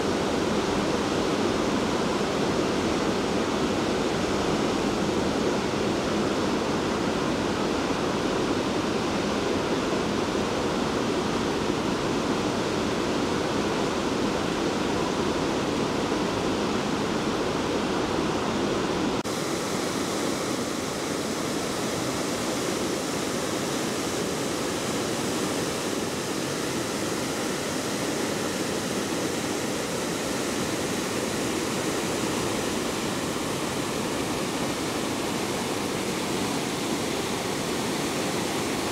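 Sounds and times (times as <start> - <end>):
water rushing over a weir: 0.0 - 38.9.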